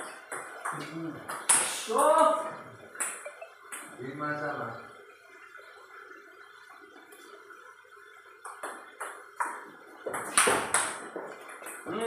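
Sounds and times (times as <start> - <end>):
ping-pong ball tapping: 0.0 - 1.6, 3.0 - 3.9.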